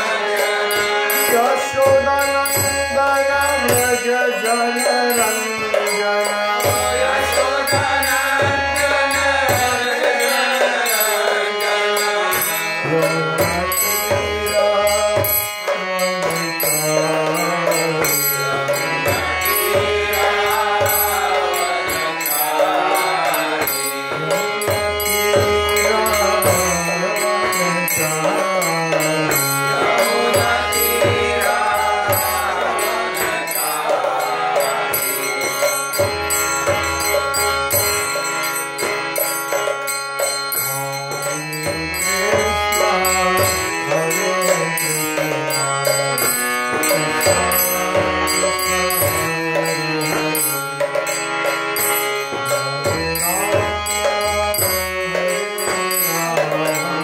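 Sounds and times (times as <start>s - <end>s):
man chanting: 0.0s - 38.2s, 40.6s - 51.1s, 51.8s - 57.0s
harmonium: 0.0s - 57.0s.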